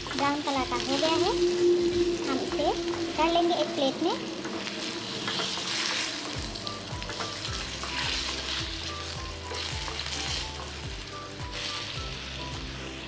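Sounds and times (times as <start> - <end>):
potatoes sizzling in oil: 0.0 - 13.0
spatula stirring in pan: 4.4 - 12.2.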